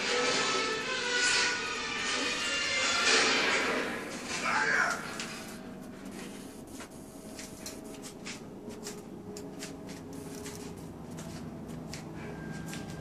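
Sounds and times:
low steady hum: 0:03.6 - 0:13.0.

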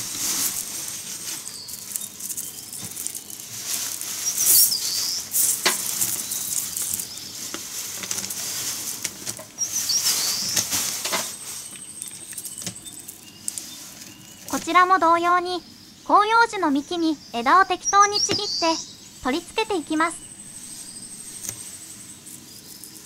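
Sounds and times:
dry branches rustling and crackling: 0:00.0 - 0:15.3.

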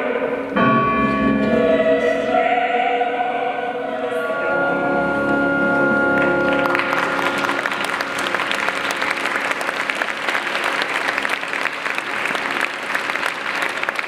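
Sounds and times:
audience applauding: 0:05.7 - 0:14.0.

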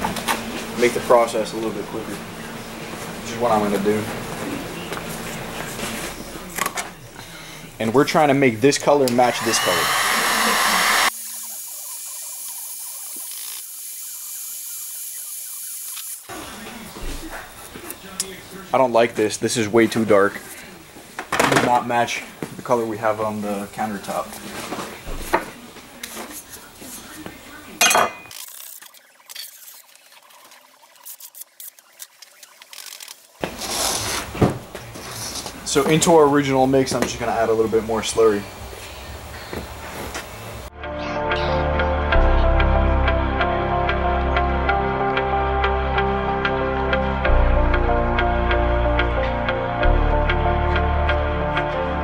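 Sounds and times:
heat gun blowing air: 0:09.1 - 0:16.2
rubbing and scraping on tabletop: 0:33.4 - 0:35.6.

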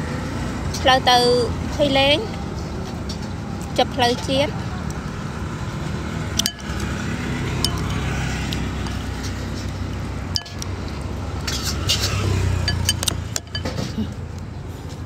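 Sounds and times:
road traffic rumble: 0:00.0 - 0:15.0
vehicle passing: 0:00.0 - 0:15.0
spoon clinking on ceramic bowl: 0:06.4 - 0:06.8, 0:10.4 - 0:10.6, 0:12.7 - 0:13.9.

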